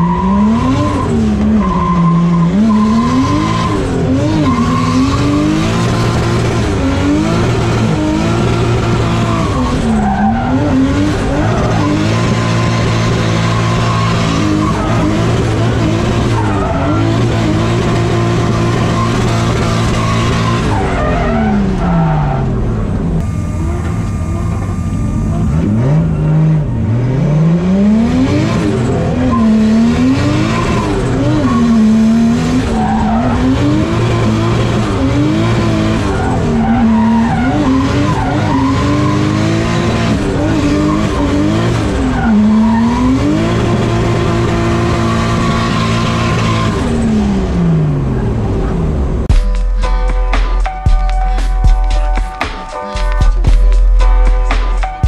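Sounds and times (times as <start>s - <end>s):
car engine revving: 0.0s - 50.8s.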